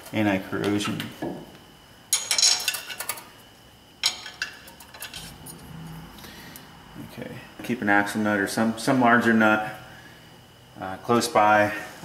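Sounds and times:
metal clinking and clattering: 2.1 - 3.3.

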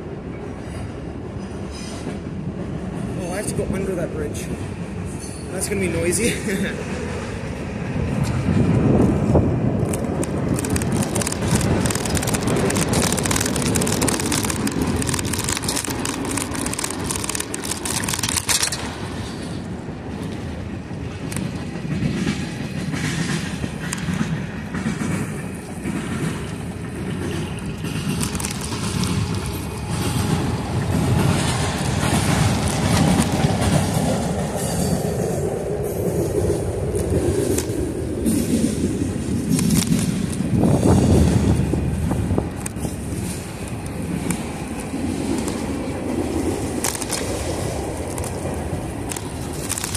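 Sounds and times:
freight train rumbling past: 0.0 - 49.9
train wheel clatter: 0.0 - 49.9
wind noise: 0.0 - 49.9
bike tyres on wooden bridge: 9.1 - 35.0.

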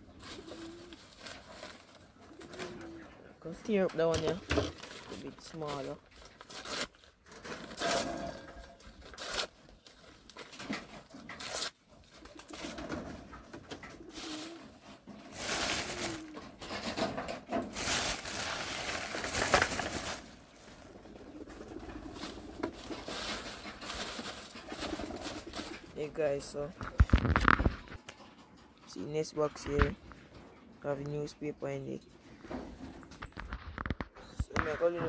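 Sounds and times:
low cooing: 0.2 - 1.2, 2.2 - 3.3, 13.8 - 14.9, 15.7 - 16.6
newspaper tearing and crumpling: 4.5 - 10.5, 11.4 - 12.8, 14.1 - 17.0, 17.6 - 21.0, 22.1 - 25.9.

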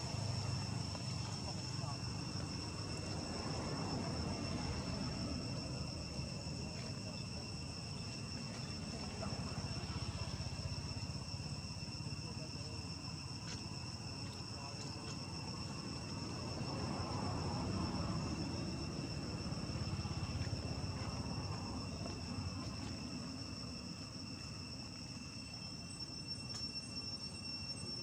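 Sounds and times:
insects trilling: 0.0 - 28.0.

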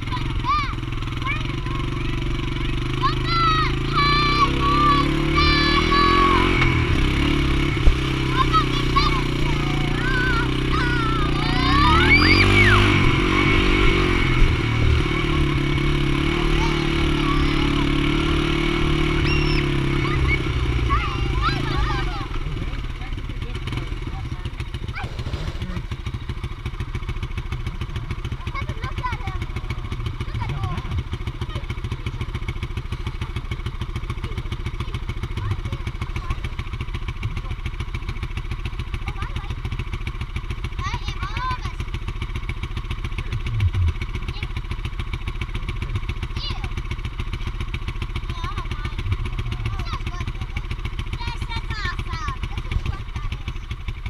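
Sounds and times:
low knock on dirt track: 0.0 - 40.0, 41.8 - 54.0
small engine running: 0.0 - 54.0
children squealing: 3.0 - 6.6, 8.3 - 14.2, 19.0 - 22.2.

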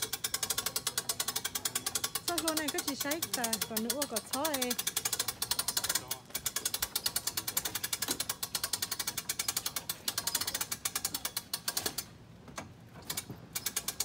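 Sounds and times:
ratchet clicking rapidly: 0.0 - 12.1, 13.0 - 14.0.

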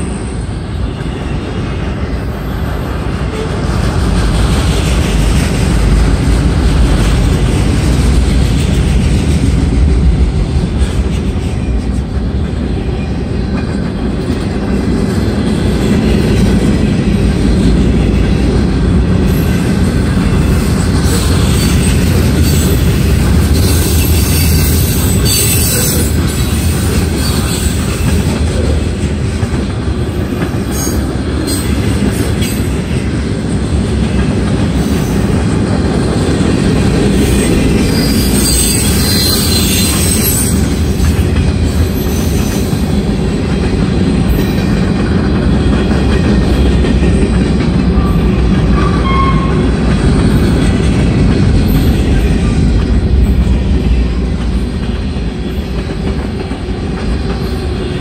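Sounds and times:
freight train wheels rumbling: 0.0 - 58.0
high-pitched screech: 37.2 - 40.7.

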